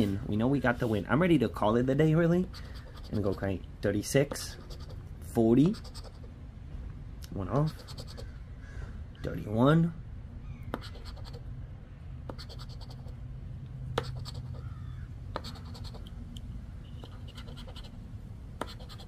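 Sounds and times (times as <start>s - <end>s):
scratching lottery ticket coating: 2.5s - 3.6s, 4.3s - 5.0s, 5.7s - 6.2s, 7.6s - 8.2s, 14.0s - 14.6s, 15.4s - 16.1s, 17.0s - 18.0s, 18.6s - 19.0s.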